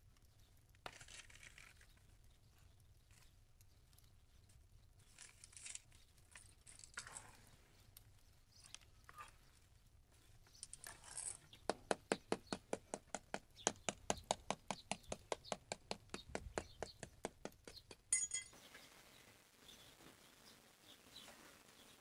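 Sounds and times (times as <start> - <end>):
stick scraping through ash: 0.8 - 2.0
hand patting flatbread: 11.6 - 18.1.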